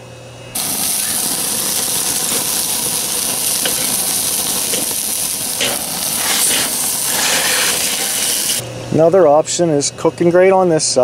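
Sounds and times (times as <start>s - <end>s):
charcoal pops and crackles: 0.6s - 8.6s
meat sizzling over charcoal: 0.6s - 8.6s.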